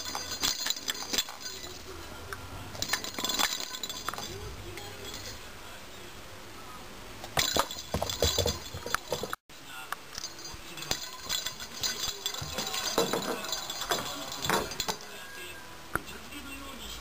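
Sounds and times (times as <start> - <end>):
bell ball jingling: 0.0 - 2.0, 2.8 - 5.5, 7.4 - 9.4, 10.2 - 15.5.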